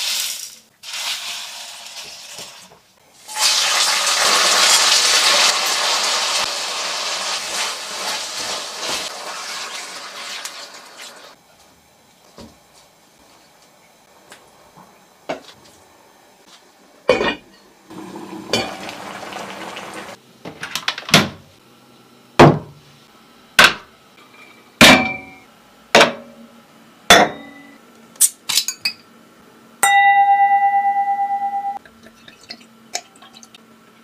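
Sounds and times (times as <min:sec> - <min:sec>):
cookware and dishes clanking: 0:17.1 - 0:17.7, 0:18.4 - 0:19.0
struck glass ringing: 0:29.8 - 0:31.8.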